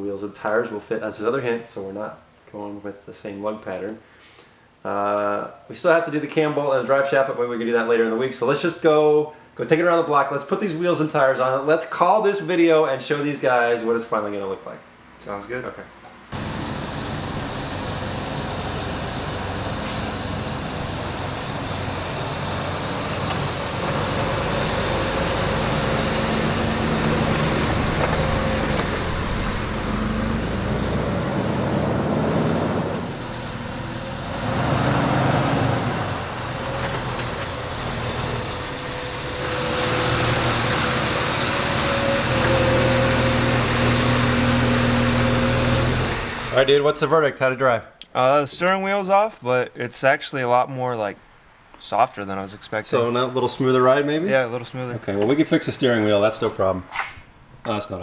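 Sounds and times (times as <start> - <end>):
car engine running: 16.4 - 46.7.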